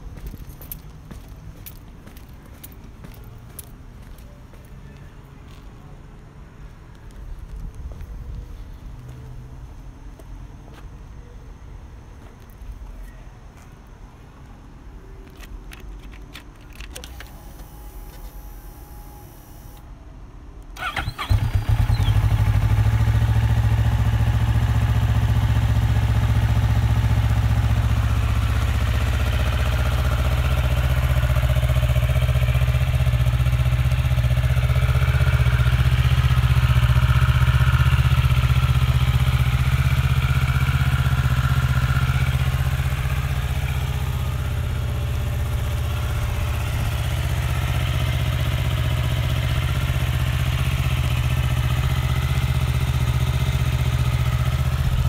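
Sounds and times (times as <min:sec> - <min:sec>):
motorcycle engine idling: 0:20.8 - 0:55.0.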